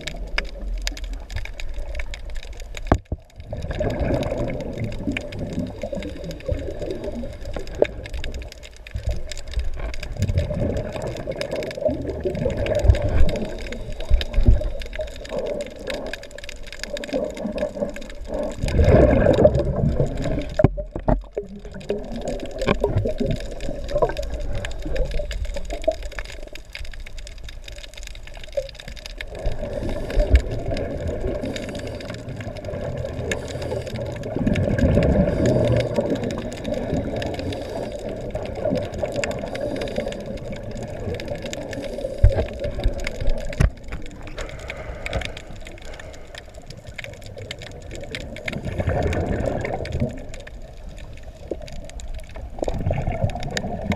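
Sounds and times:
bubbles rushing and gurgling: 0.0s - 53.9s
diver breathing through regulator: 29.5s - 32.6s, 33.2s - 34.3s, 35.0s - 36.2s, 37.2s - 38.4s, 39.4s - 40.6s, 41.7s - 43.0s, 44.3s - 46.7s.

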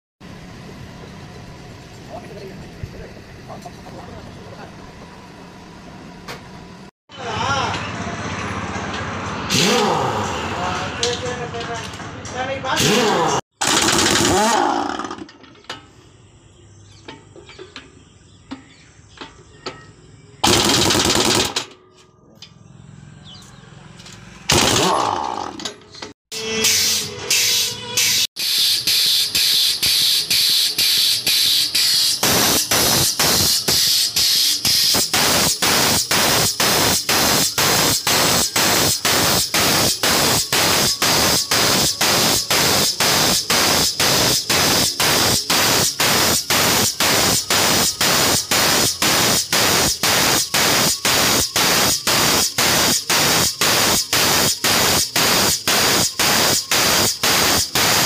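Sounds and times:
pulsing hiss of air jack pump: 26.6s - 58.0s.

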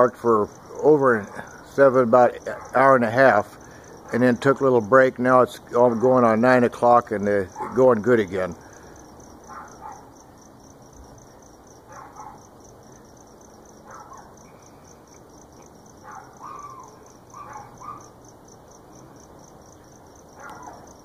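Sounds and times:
crickets chirping: 0.0s - 21.0s
dogs barking: 2.5s - 2.9s, 9.5s - 10.1s, 11.8s - 12.5s, 13.8s - 14.4s, 16.0s - 18.2s, 20.4s - 21.0s.

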